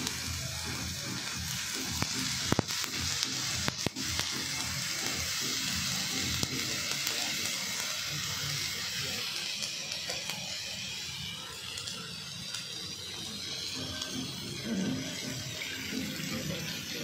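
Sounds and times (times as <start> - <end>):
chicken sizzling on hot plate: 0.0 - 17.0.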